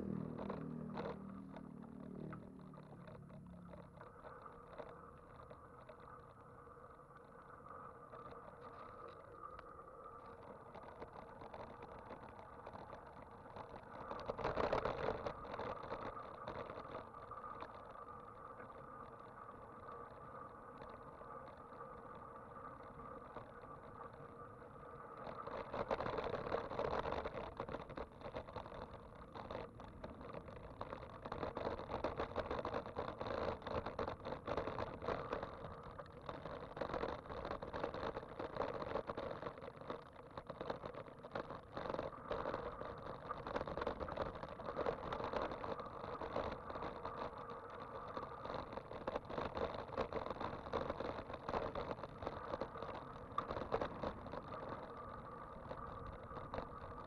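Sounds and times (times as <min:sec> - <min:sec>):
vehicle road noise: 0:00.0 - 0:05.5.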